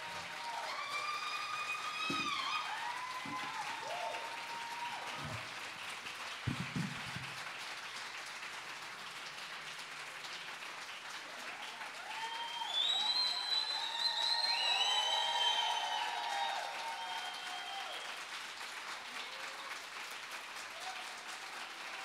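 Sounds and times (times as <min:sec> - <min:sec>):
voices calling out and cheering: 0:00.0 - 0:05.4
audience applauding: 0:00.0 - 0:22.0.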